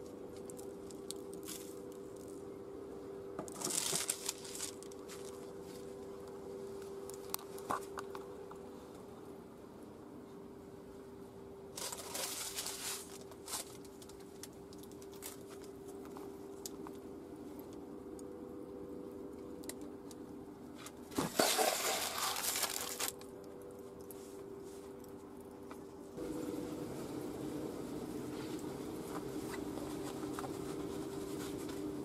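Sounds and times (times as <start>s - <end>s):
faint steady hum: 0.0s - 32.0s
baking paper crinkling: 3.5s - 6.0s, 11.8s - 15.8s, 21.2s - 23.3s.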